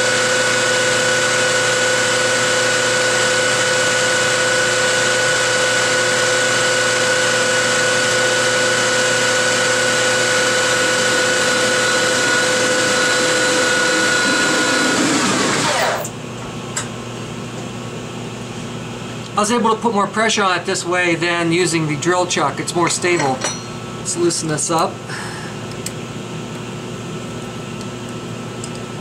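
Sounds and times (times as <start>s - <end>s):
metal lathe whining: 0.1s - 16.1s
click: 28.6s - 28.8s.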